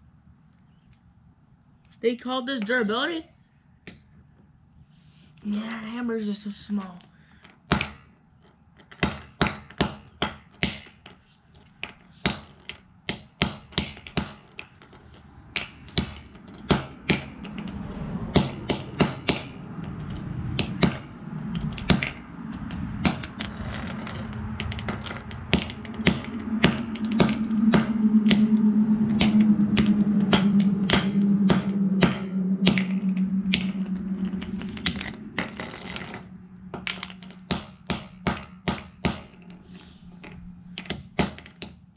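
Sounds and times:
low steady hum: 14.8s - 41.9s.

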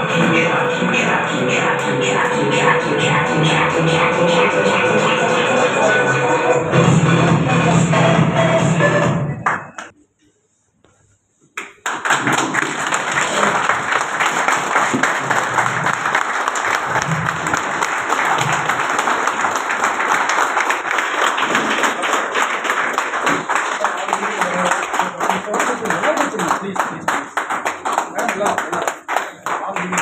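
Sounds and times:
people clapping: 0.0s - 6.3s, 9.3s - 10.0s, 11.5s - 30.0s
recorded music: 0.0s - 9.9s.

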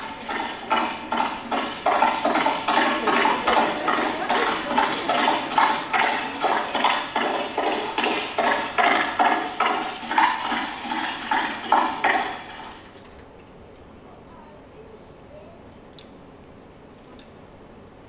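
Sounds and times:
horse hooves trotting: 0.0s - 13.2s.

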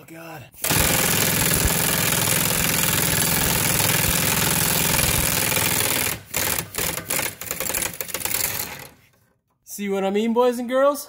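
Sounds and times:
impact wrench hammering: 0.6s - 9.0s.

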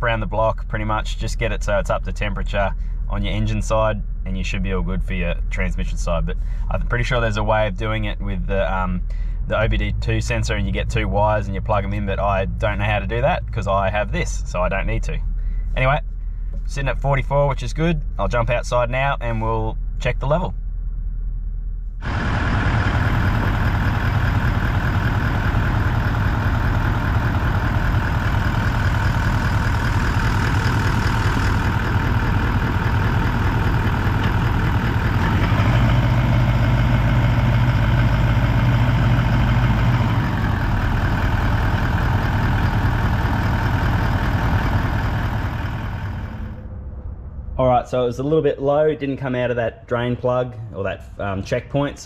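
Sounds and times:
diesel engine idling: 22.0s - 48.8s.

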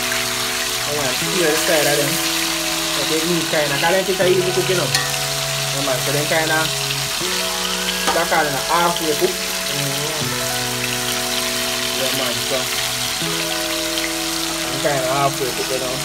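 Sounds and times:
background music with held chords: 0.0s - 16.0s
fish sizzling in hot oil: 0.0s - 16.0s
person singing: 0.0s - 16.0s.

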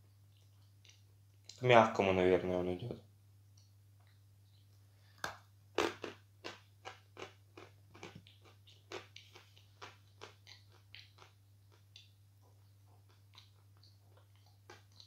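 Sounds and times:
crunchy chewing: 5.8s - 15.0s.

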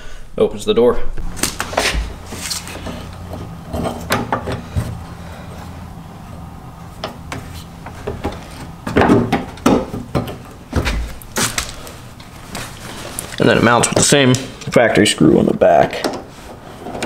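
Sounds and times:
heavy thud: 1.2s - 5.1s, 7.0s - 11.8s.

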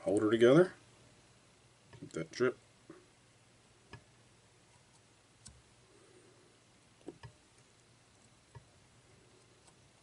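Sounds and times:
faint clicks and taps of tools: 3.9s - 4.1s, 7.0s - 8.7s.

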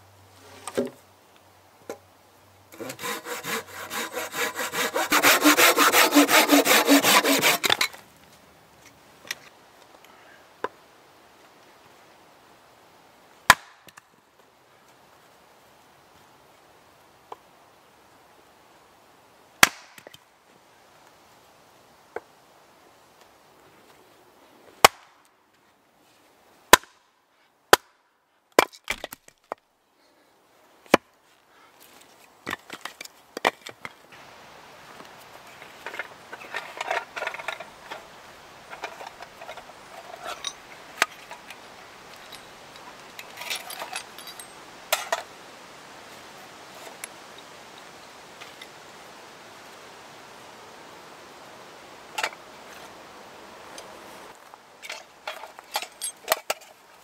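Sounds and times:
axe chopping firewood: 13.5s - 14.0s, 19.6s - 20.1s, 24.8s - 25.1s, 26.7s - 27.0s.

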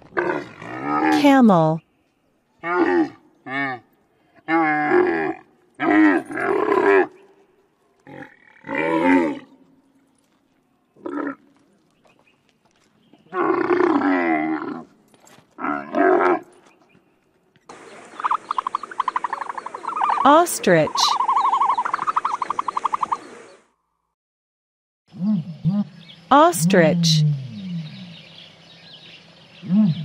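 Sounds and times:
camel groaning calls: 2.6s - 7.2s, 8.0s - 9.5s, 11.0s - 11.6s, 13.3s - 14.9s, 15.6s - 16.5s, 29.6s - 30.0s.

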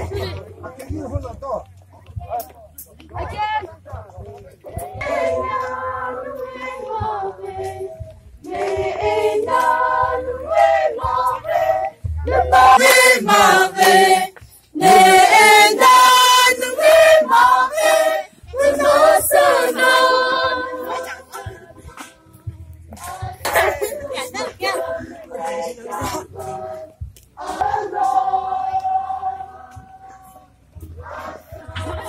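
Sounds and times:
group of voices singing: 3.2s - 32.0s.

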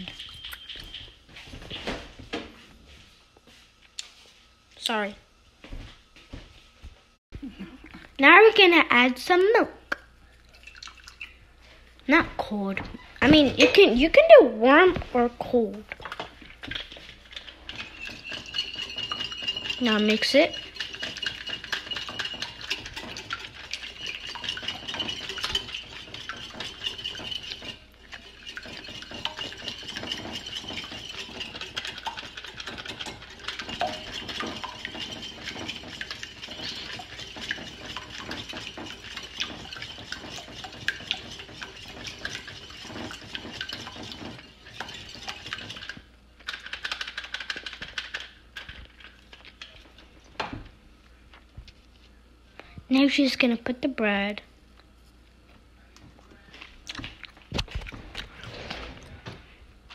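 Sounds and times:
fork clinking in ceramic bowl: 17.7s - 45.8s.

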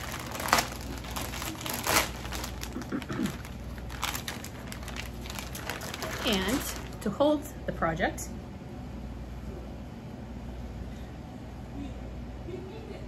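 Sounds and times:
packaging crinkling: 0.0s - 7.1s.

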